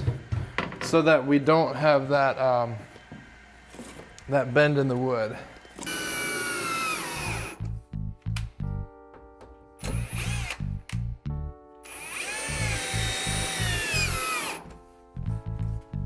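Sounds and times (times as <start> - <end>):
cordless drill driving screws: 5.8 - 7.6, 9.8 - 10.7, 11.8 - 14.7.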